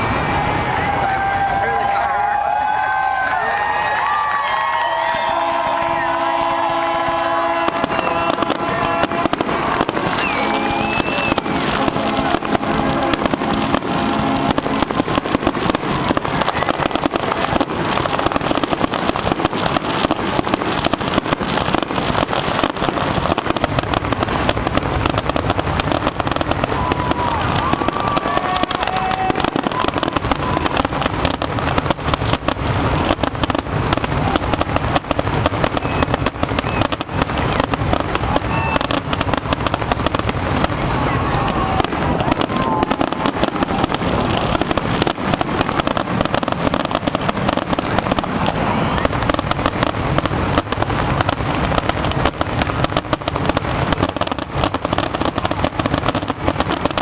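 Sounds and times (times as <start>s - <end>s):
fireworks bangs and crackling: 0.0s - 57.0s
steady horn: 5.2s - 15.0s.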